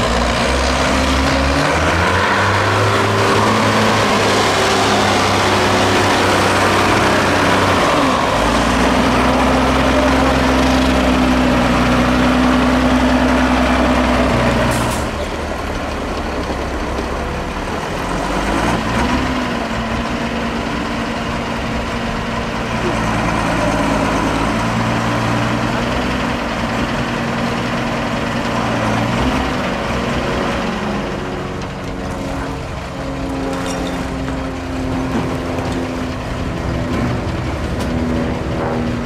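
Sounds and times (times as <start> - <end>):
diesel truck engine under load: 0.0 - 39.0.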